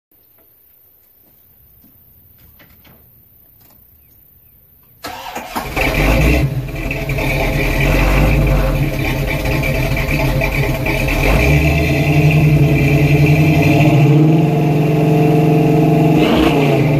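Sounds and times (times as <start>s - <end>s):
car engine cranking and running: 5.0s - 16.9s.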